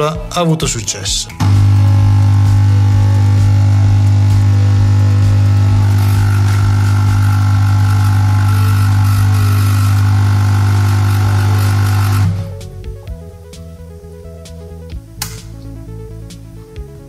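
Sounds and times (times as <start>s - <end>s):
espresso machine pump humming: 1.4s - 12.5s.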